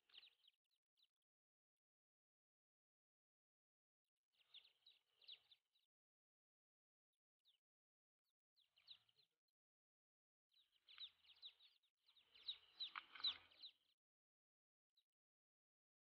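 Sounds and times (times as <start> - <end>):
ducklings peeping: 0.1 - 0.5, 4.5 - 5.6, 8.7 - 9.3, 10.6 - 13.9.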